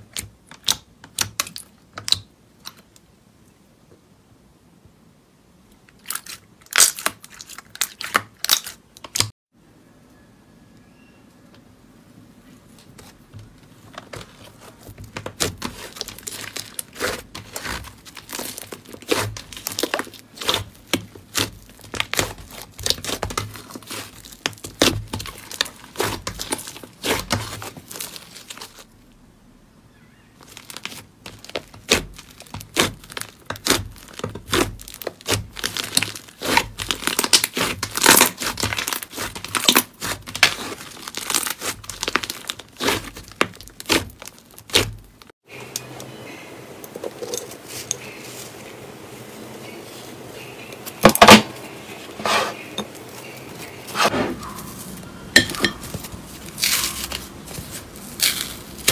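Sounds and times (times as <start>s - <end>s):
slime crackling and popping: 6.0s - 9.3s, 15.1s - 28.9s, 30.4s - 45.3s, 55.8s - 58.9s.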